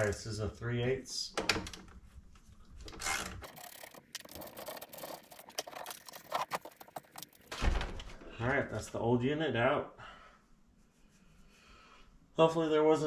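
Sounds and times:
rubbing and scraping: 0:02.0 - 0:07.5.

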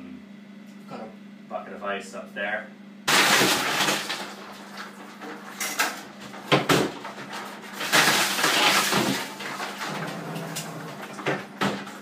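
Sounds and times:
ice water splashing and clattering: 0:03.1 - 0:12.0.

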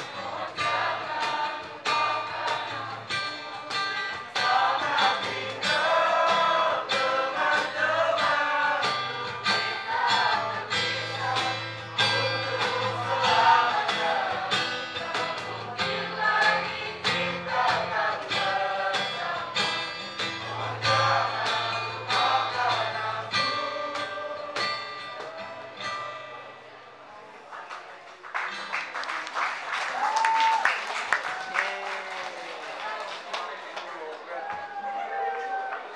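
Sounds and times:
choir singing: 0:00.0 - 0:25.2
guitar: 0:00.0 - 0:32.4.

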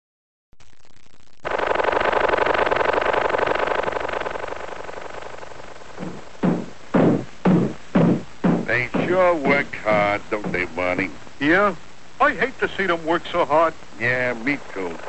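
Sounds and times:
cartoon lawnmower buzzing: 0:01.5 - 0:10.1
heavy thudding pulses: 0:01.5 - 0:12.6.

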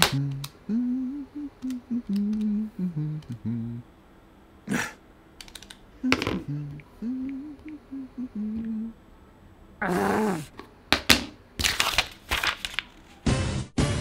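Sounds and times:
man humming: 0:00.0 - 0:04.0, 0:04.6 - 0:05.0, 0:05.9 - 0:09.0, 0:09.8 - 0:10.5.

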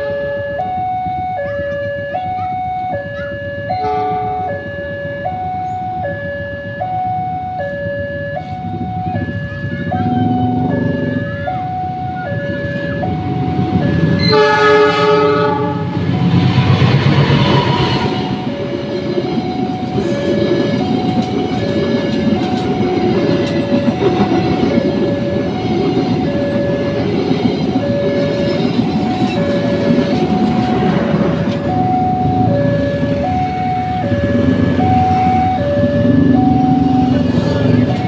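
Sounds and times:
two-tone level crossing alarm: 0:00.0 - 0:38.0
locomotive horn blast: 0:03.8 - 0:04.5, 0:14.0 - 0:16.0
train coaches clattering over rails: 0:08.4 - 0:14.9, 0:16.0 - 0:38.0.

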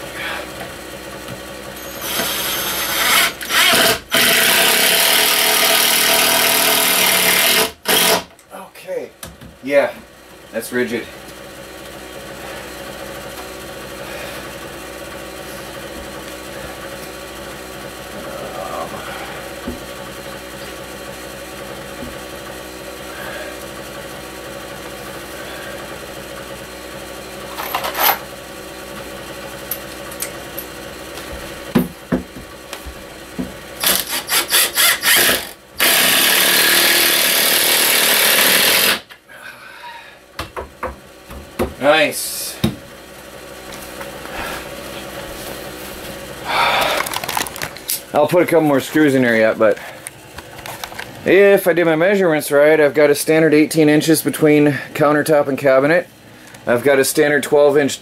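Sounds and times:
cordless drill driving screws: 0:01.8 - 0:08.3, 0:33.8 - 0:39.1.

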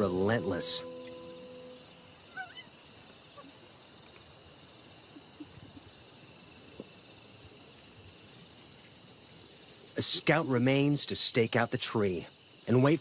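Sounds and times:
high chirp: 0:00.0 - 0:02.7
night insects chirring: 0:00.0 - 0:13.0.

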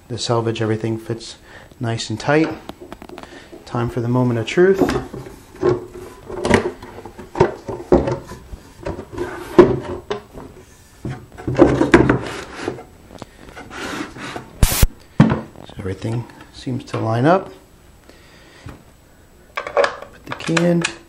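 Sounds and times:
wooden lid knocking and rubbing: 0:04.8 - 0:14.6
short sharp noise: 0:14.6 - 0:15.0.

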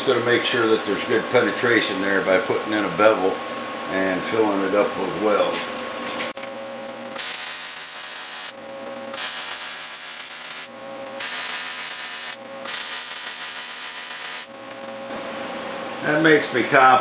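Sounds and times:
arc welding crackling hiss: 0:07.2 - 0:14.6.

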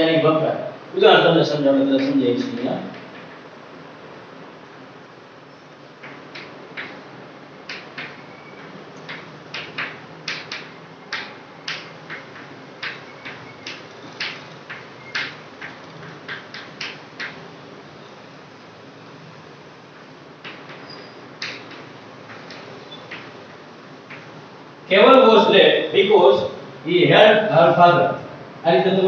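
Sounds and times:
chalk tapping and scratching: 0:07.7 - 0:17.4, 0:20.4 - 0:24.3.

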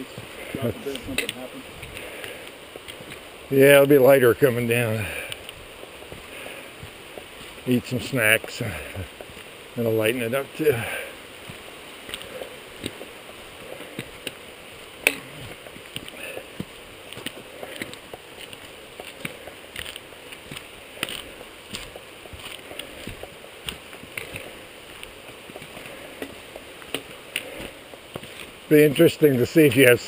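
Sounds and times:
footsteps on rocky trail: 0:00.0 - 0:30.0
trekking poles clicking on rock: 0:00.1 - 0:03.3, 0:04.9 - 0:07.7, 0:11.5 - 0:28.7.

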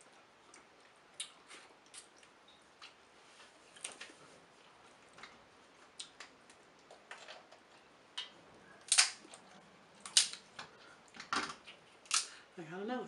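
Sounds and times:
crab shells cracking: 0:08.2 - 0:09.4, 0:10.0 - 0:12.4.

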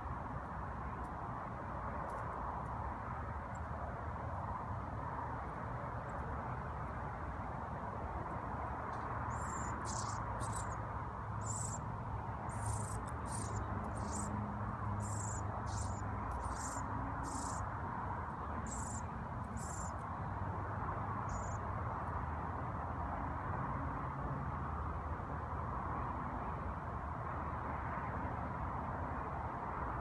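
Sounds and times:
fledgling bird begging chirps: 0:09.3 - 0:10.8, 0:12.5 - 0:14.3.

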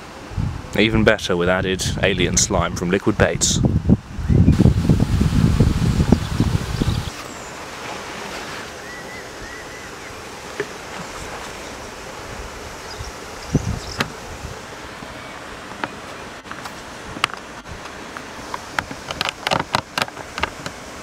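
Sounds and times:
wind rumble on microphone: 0:00.0 - 0:07.2, 0:12.2 - 0:14.8
wind hiss: 0:00.0 - 0:21.0
faint bird chirps: 0:08.8 - 0:10.2.

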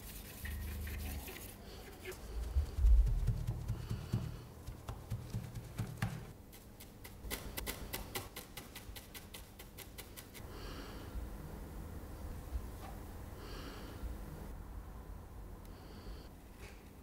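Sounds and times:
cloth rubbing on paper: 0:00.0 - 0:06.8
pencil tip tapping on paper: 0:03.2 - 0:06.3.

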